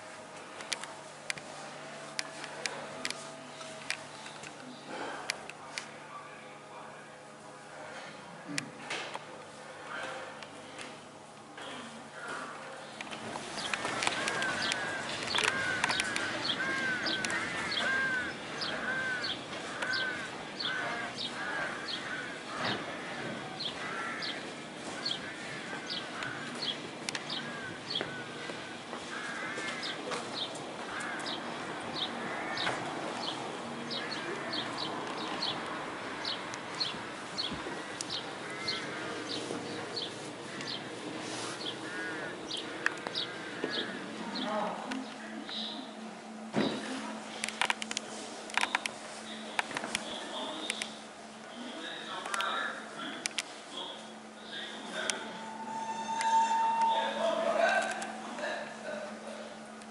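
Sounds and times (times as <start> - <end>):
bird high notes: 55.1 - 57.6.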